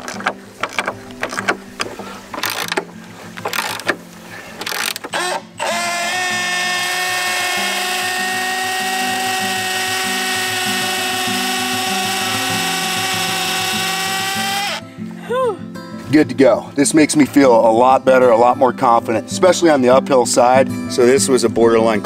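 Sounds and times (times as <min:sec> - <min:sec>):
ratchet wrench clicks: 0:02.4 - 0:02.8, 0:03.4 - 0:03.9, 0:04.6 - 0:06.3
cordless drill whining: 0:03.4 - 0:03.9, 0:04.6 - 0:14.8.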